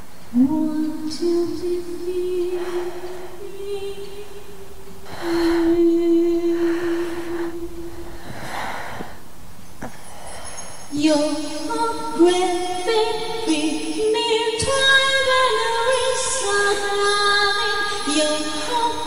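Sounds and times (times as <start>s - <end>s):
soft hissing swells: 0.0s - 19.0s
woman humming slow melody: 0.3s - 9.2s.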